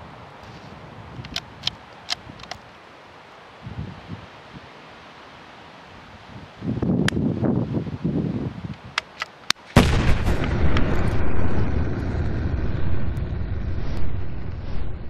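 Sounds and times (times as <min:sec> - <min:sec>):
loud boom with rumble: 0:09.8 - 0:15.0.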